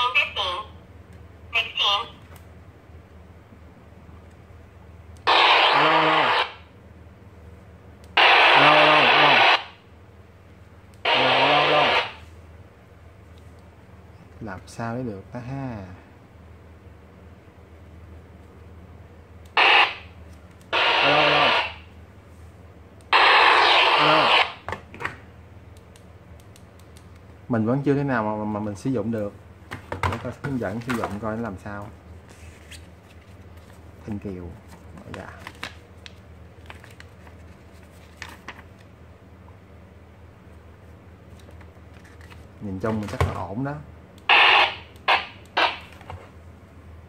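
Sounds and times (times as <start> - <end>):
steady low hum: 0.0 - 47.0
radio static hiss: 5.2 - 6.7, 8.2 - 9.8, 11.0 - 12.3, 19.5 - 21.9, 23.1 - 24.7, 44.2 - 46.0
paper booklet pages rustling: 30.2 - 31.4, 32.2 - 38.9, 41.3 - 43.2.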